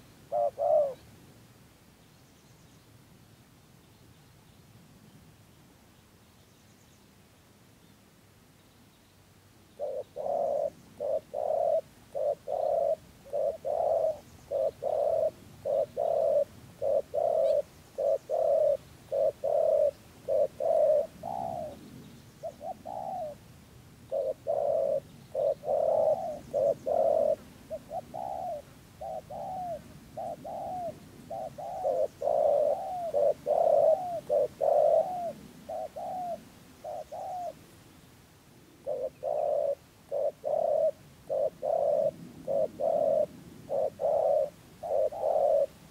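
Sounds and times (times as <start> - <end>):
dove cooing: 0.0 - 1.1, 9.8 - 23.5, 24.1 - 37.7, 38.6 - 45.9.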